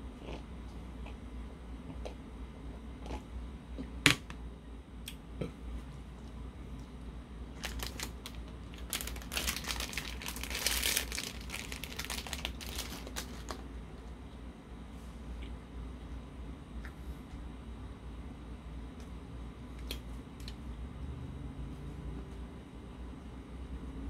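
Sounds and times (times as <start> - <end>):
plastic wrapper crinkling and tearing: 7.6 - 13.7.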